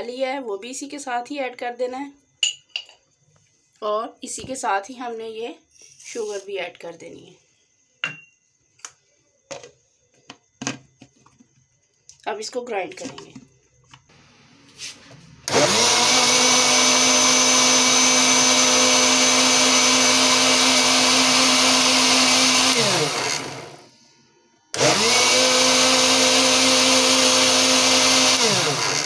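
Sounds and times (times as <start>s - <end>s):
electric blender running: 14.1s - 24.0s, 24.7s - 29.0s.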